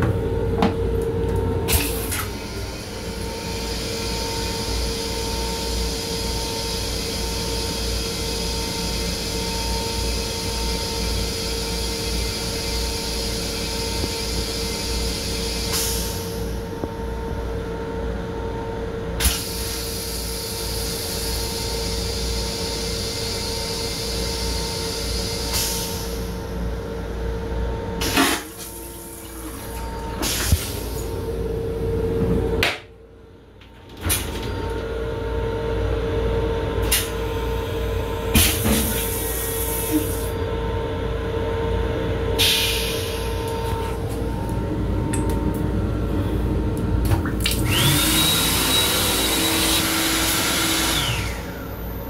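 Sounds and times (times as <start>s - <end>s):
toilet flush hissing rush: 1.7s - 16.6s, 19.2s - 26.4s, 28.0s - 31.3s, 36.8s - 40.4s, 42.4s - 44.1s, 47.4s - 51.9s.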